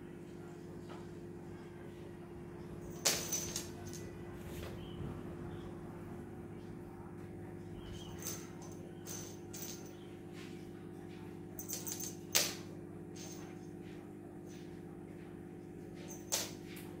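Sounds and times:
steady low hum: 0.0s - 17.0s
cats playing on wooden floor: 2.6s - 5.2s, 6.6s - 17.0s.

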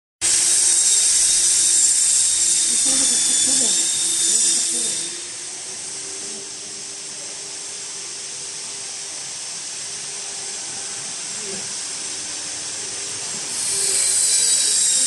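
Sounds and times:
machinery hiss: 0.2s - 15.0s.

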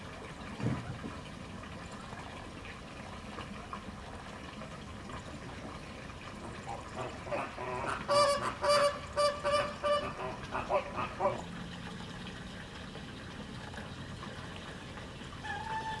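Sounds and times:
waterfowl calling: 6.6s - 11.4s, 15.4s - 16.0s.

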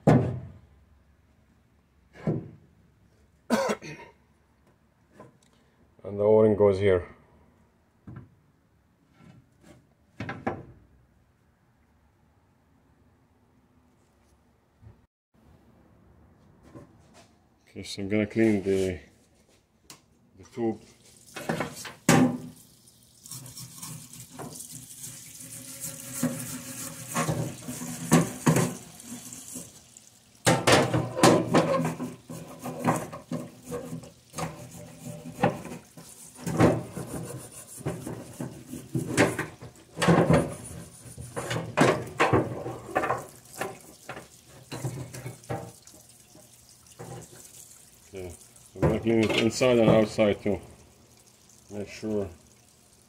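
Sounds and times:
running liquid hissing: 20.8s - 53.0s.

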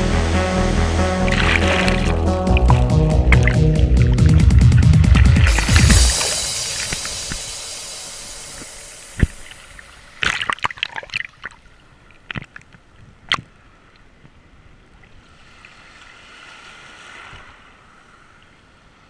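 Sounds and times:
rush of water: 1.3s - 13.6s
sharp knock: 1.8s - 9.4s.

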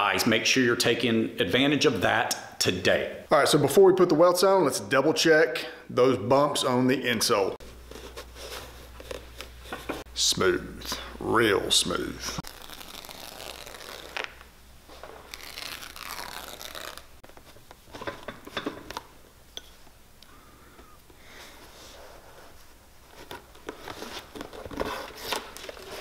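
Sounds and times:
awl crunching through leather: 12.4s - 17.2s.

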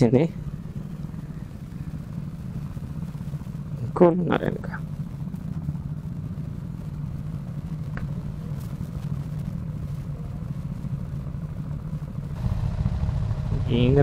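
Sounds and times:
other motorcycles: 0.0s - 14.0s
motorcycle engine idling: 12.4s - 14.0s.

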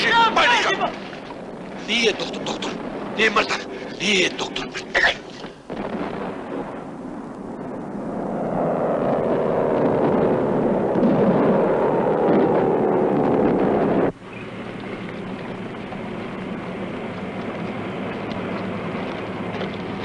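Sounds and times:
aircraft engines droning: 0.0s - 5.7s, 6.9s - 20.0s
tank engine and tracks rumbling: 7.4s - 20.0s.

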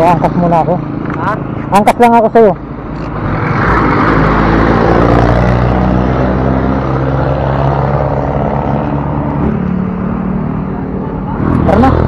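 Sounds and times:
vehicle engine passing by: 3.0s - 12.0s.

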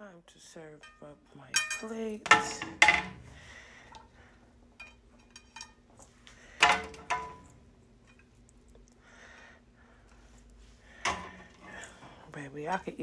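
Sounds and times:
faint low hum: 0.0s - 13.0s
kitchenware clinking: 0.8s - 3.2s, 4.8s - 5.9s, 6.6s - 8.4s.

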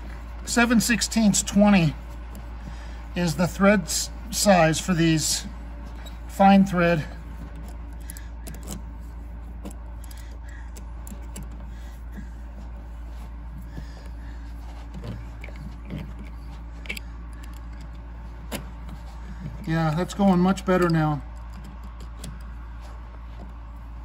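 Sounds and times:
steady low hum: 0.0s - 24.0s
wrench clicking and scraping: 7.4s - 11.7s, 14.9s - 22.6s.

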